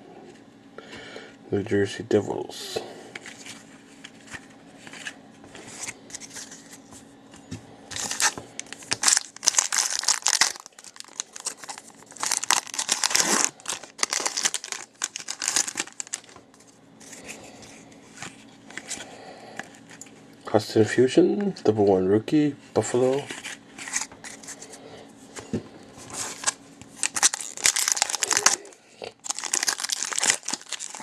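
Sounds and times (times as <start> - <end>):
foil wrapper tearing and crinkling: 8.0 - 16.4, 26.2 - 31.0.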